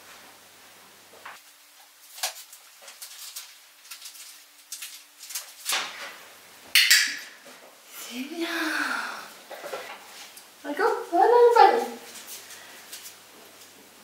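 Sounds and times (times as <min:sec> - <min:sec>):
magazine pages rustling: 0:01.4 - 0:06.2.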